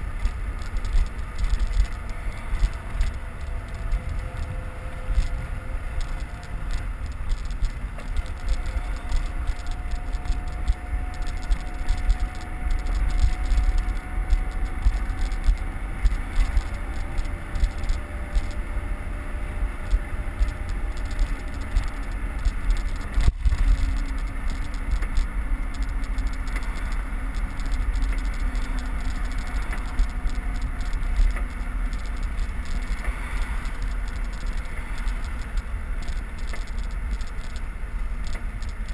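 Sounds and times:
road and traffic noise: 0.0s - 38.9s
wind rush on microphone: 0.0s - 38.9s
sharp click: 19.8s - 38.9s.

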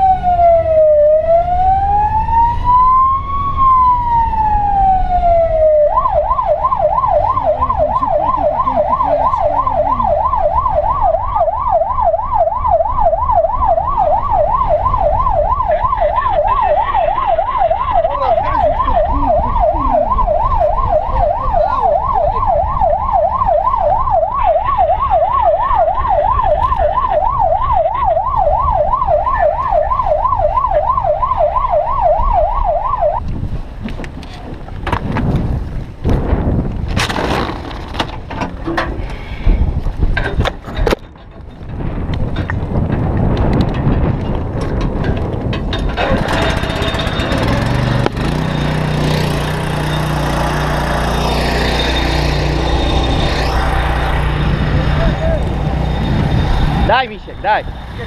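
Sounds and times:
siren wailing and yelping: 0.0s - 33.2s, 48.8s - 58.0s
engine and road rumble: 0.0s - 58.0s.

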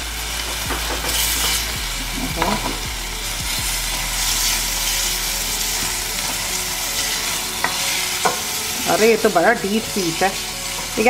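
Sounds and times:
chicken sizzling in a pan: 0.0s - 11.0s
spatula scraping and tapping pan: 0.5s - 1.8s, 7.6s - 8.5s.

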